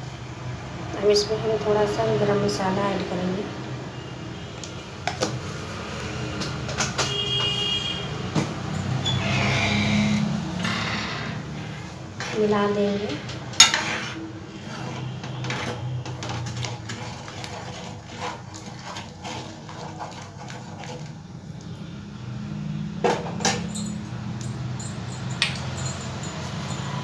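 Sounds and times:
ladle scraping metal pan: 10.2 - 21.1.

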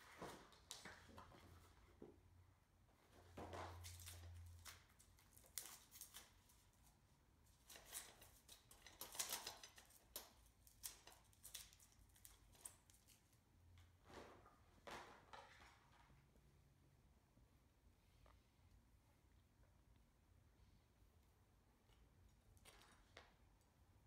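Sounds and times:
clicks and rustles of wire parts: 3.5 - 13.9.

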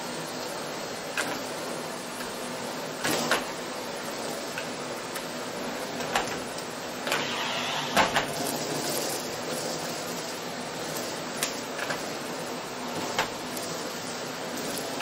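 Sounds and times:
vacuum cleaner running: 0.0 - 15.0.

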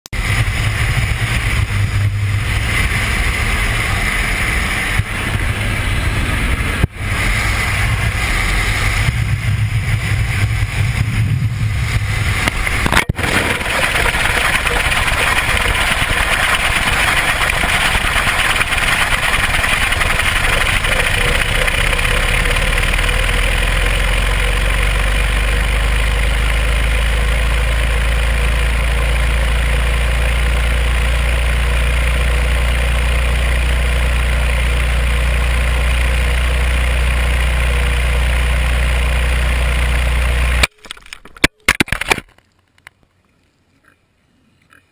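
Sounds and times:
airplane engine: 0.1 - 40.7
wind rushing over falling camera: 0.2 - 18.1
low whirring hum: 0.2 - 44.9.

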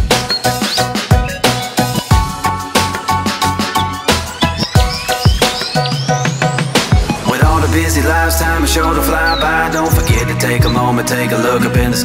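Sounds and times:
held chords: 0.0 - 12.0
kick drum beat: 1.1 - 2.5, 4.2 - 7.8, 9.9 - 11.0, 11.8 - 12.0.

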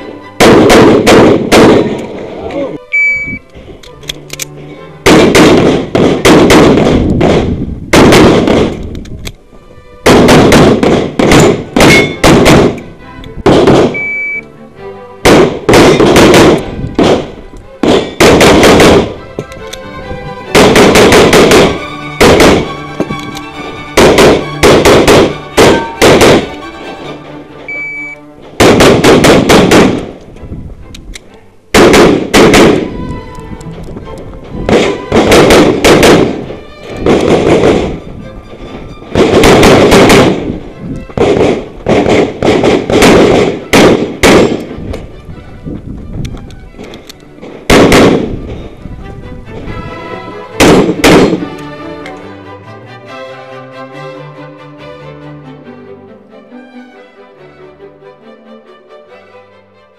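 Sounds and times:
music: 0.0 - 59.9
rapid pistol shots: 0.4 - 1.9, 5.1 - 8.8, 10.1 - 12.8, 13.5 - 14.0, 15.3 - 17.2, 17.8 - 19.2, 20.6 - 22.7, 24.0 - 26.5, 28.6 - 30.1, 31.8 - 32.9, 34.7 - 36.4, 39.2 - 40.5, 41.2 - 44.7, 47.7 - 48.3, 50.6 - 51.4.

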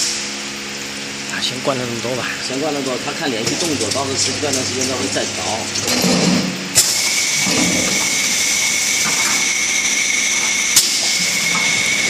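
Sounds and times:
thin high whine: 1.3 - 12.0
loud hiss: 6.7 - 12.0.

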